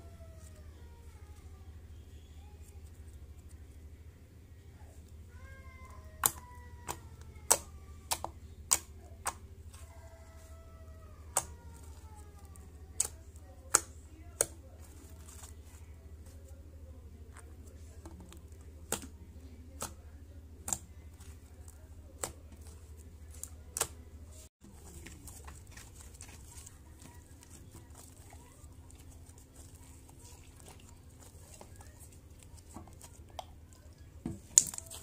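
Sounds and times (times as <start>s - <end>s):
low steady hum: 0.0s - 35.0s
slime clicking and popping: 33.1s - 35.0s.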